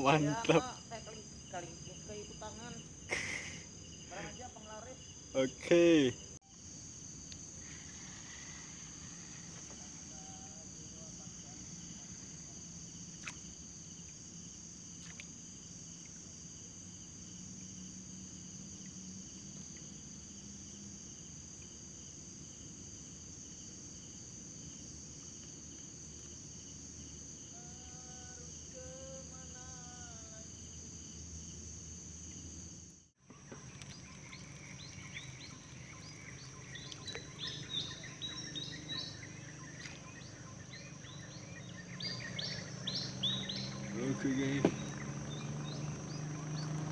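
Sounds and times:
crickets chirring: 0.0s - 46.9s
short insect calls: 0.0s - 46.9s
birds chirping: 33.3s - 46.9s.

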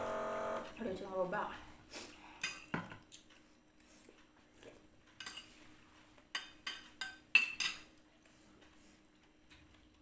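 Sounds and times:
metal spoons clinking on dishes: 5.2s - 5.6s, 6.3s - 7.9s.

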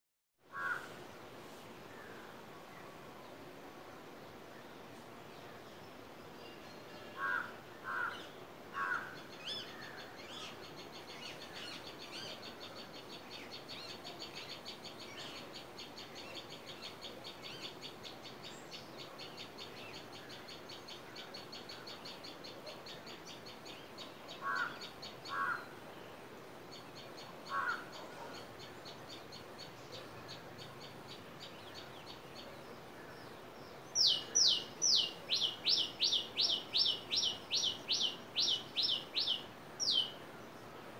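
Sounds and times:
crows cawing: 0.5s - 0.9s, 7.2s - 9.2s, 24.4s - 25.7s, 27.5s - 28.0s.

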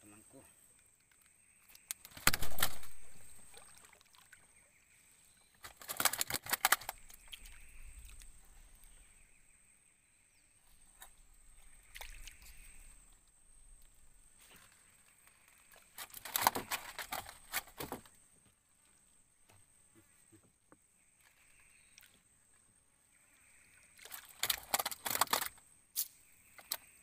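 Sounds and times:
knocking and rattling in a boat: 16.0s - 18.1s.

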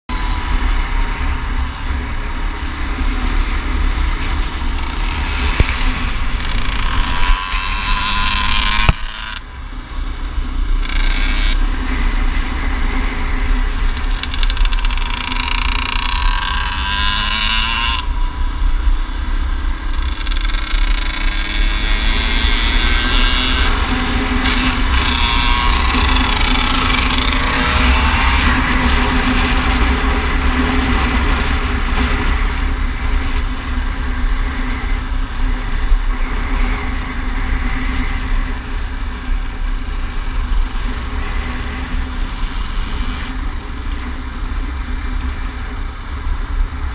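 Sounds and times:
wind rumble on microphone: 0.1s - 46.9s
dirt bike engine revving: 3.0s - 9.5s, 10.7s - 12.1s, 13.9s - 18.3s, 19.9s - 30.2s.

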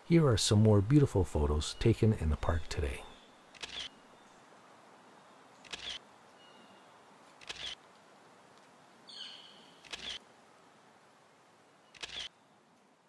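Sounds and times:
camera shutter clicks: 3.6s - 3.9s, 5.6s - 6.0s, 7.4s - 7.8s, 9.8s - 10.2s, 12.0s - 12.3s.

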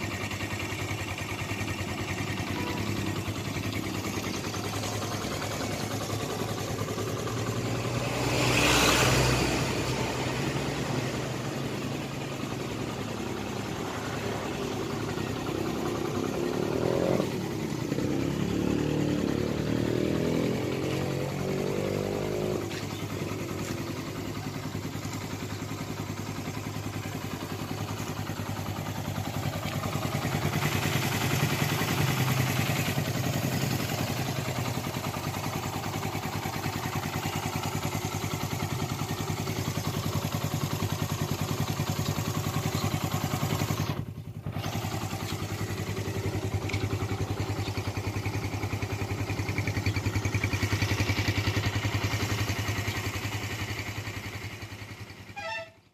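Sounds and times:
motorcycle engine idling: 0.0s - 55.9s.

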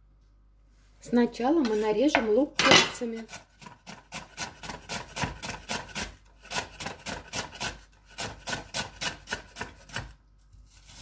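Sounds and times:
knife slicing onion on board: 1.6s - 11.0s.

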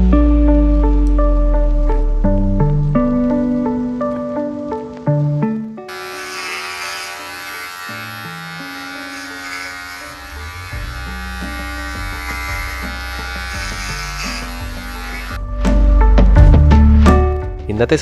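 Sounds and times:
slow low music notes: 0.0s - 6.8s, 7.8s - 18.0s
electric hair clippers buzzing: 5.9s - 15.4s.

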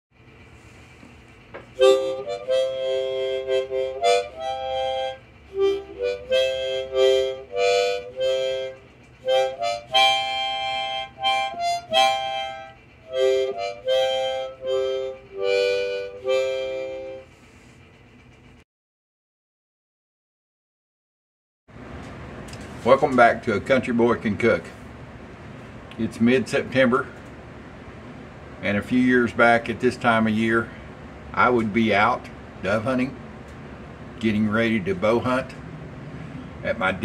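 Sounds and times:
harmonica playing chords: 1.7s - 17.3s.

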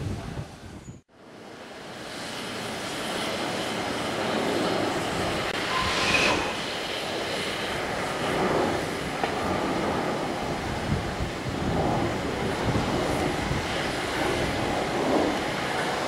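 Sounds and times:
steam locomotive hissing: 1.7s - 9.2s
brief high-pitched tone: 5.6s - 6.7s.

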